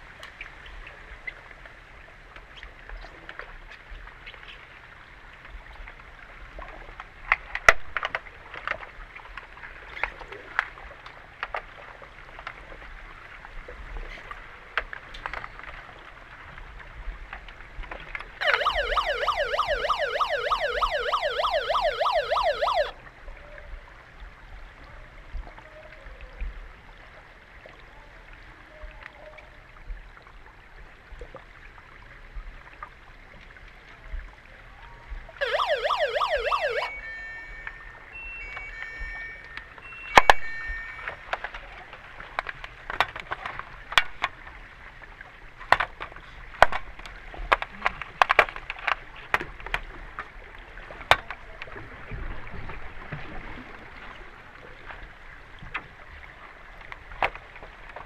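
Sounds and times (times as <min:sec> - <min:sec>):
warbling underwater siren: 0:18.4 - 0:23.0, 0:35.4 - 0:41.4
short steady beeps: 0:35.4 - 0:41.3.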